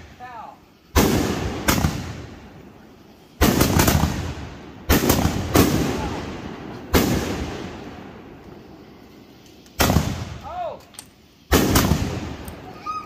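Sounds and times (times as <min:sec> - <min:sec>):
firework shells booming: 0:00.9 - 0:02.8, 0:03.4 - 0:08.7, 0:09.6 - 0:12.8.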